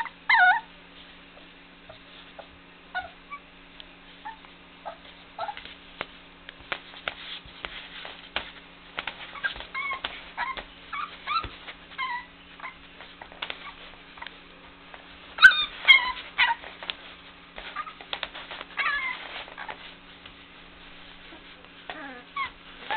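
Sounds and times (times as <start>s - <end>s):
puppies yipping and whimpering: 0.0s - 0.7s, 2.4s - 3.5s, 4.2s - 5.7s, 9.2s - 13.9s, 15.4s - 16.8s, 17.6s - 19.9s, 21.3s - 22.9s
light knocks and scuffles: 5.6s - 12.0s.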